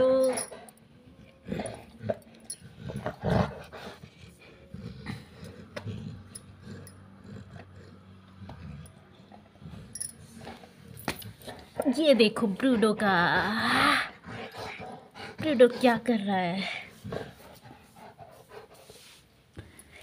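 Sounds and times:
dog growling low: 0.0 - 11.9, 12.5 - 15.6.

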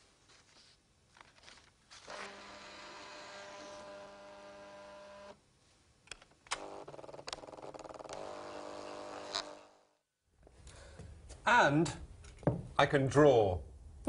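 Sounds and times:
fax machine motor hum: 2.1 - 5.4, 8.2 - 9.8.

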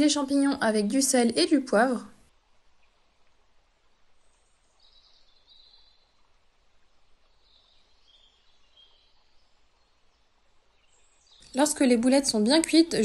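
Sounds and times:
faint bird chirping: 2.6 - 13.0.

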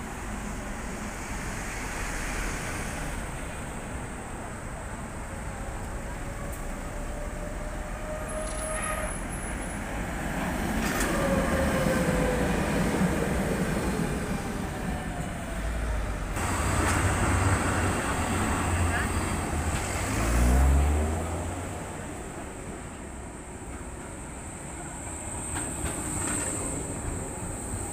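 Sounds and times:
street traffic: 0.0 - 27.9
tram rumbling: 0.0 - 27.9.

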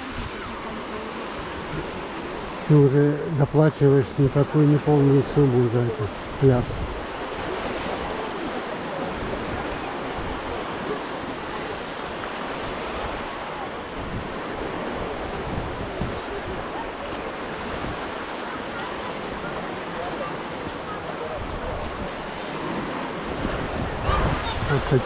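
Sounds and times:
sea waves on a beach: 0.0 - 25.0
wind on microphone: 6.0 - 18.3, 20.5 - 25.0.

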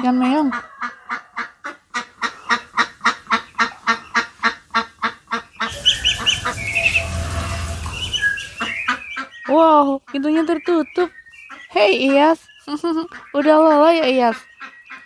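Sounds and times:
duck quacking: 0.1 - 9.4
low rustle: 5.7 - 8.8
short high chirps: 5.7 - 9.1.

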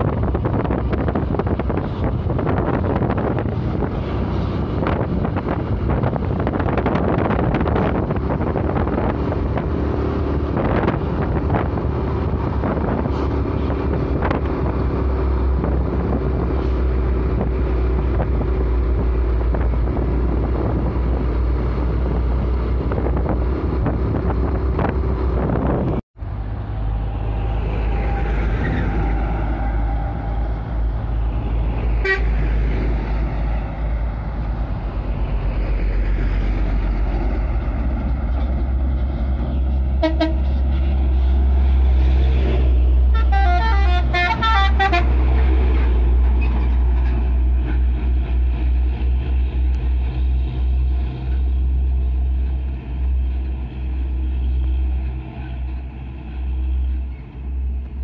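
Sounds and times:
diesel trucks driving past: 0.0 - 58.0
multi-tone musical horn: 32.0 - 32.5, 40.0 - 40.5, 43.1 - 45.4
short horn toots: 40.0 - 40.6.

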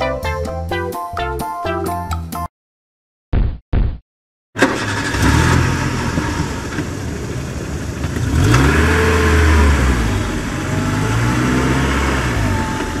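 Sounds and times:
vehicle engine revving: 4.6 - 13.0.

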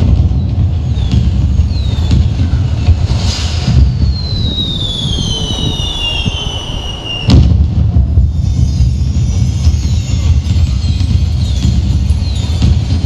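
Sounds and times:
steady low rumble: 0.0 - 13.0
firework whistle falling in pitch: 0.8 - 10.1.

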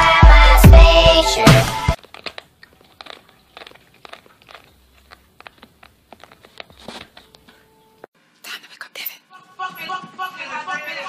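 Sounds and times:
cat chewing with crunches: 2.0 - 7.4.

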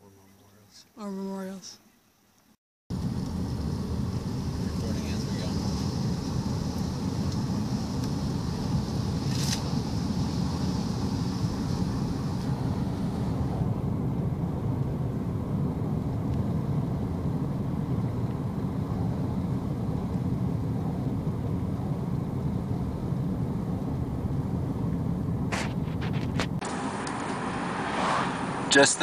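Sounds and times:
light hiss: 1.8 - 13.6, 25.5 - 29.0
car cabin road rumble: 2.9 - 29.0.

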